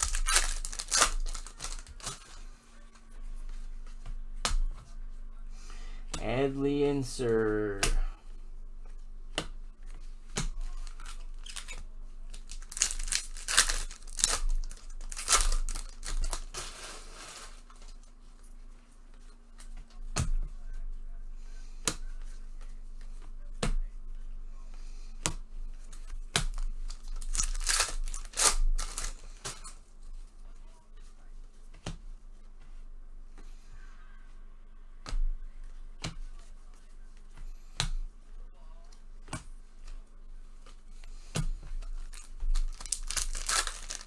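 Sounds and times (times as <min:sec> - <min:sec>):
wrappers tearing and crinkling: 0:00.0 - 0:02.3, 0:10.8 - 0:17.9, 0:26.5 - 0:29.7, 0:41.9 - 0:44.0.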